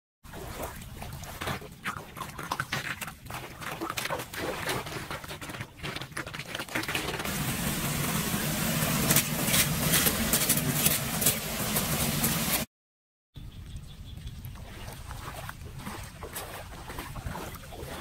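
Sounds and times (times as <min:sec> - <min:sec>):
water splashing and sloshing: 0:00.2 - 0:12.7, 0:14.1 - 0:18.0
water draining through metal grate: 0:02.3 - 0:12.6
broom scratching strokes: 0:08.1 - 0:12.7.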